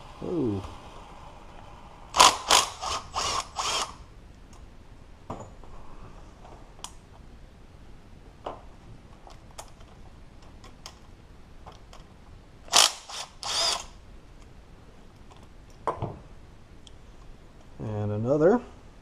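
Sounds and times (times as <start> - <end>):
cordless power tool whirring: 2.2 - 4.0, 12.7 - 14.0.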